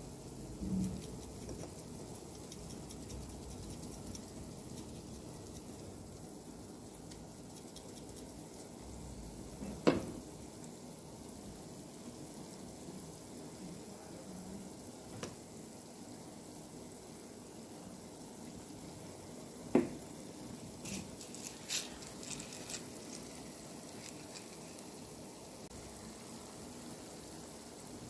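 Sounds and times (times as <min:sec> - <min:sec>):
oil sizzling in a frying pan: 0:00.0 - 0:28.0.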